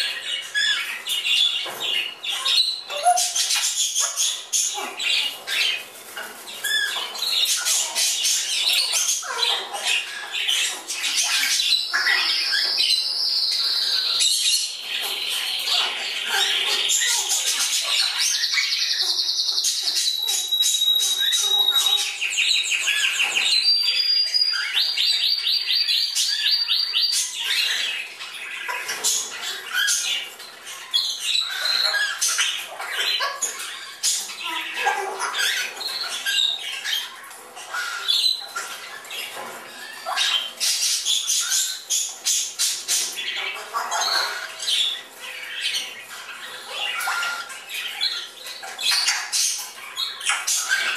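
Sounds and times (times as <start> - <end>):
parrots calling: 0.0 - 50.9
squawks whistles and chirps: 17.7 - 27.9.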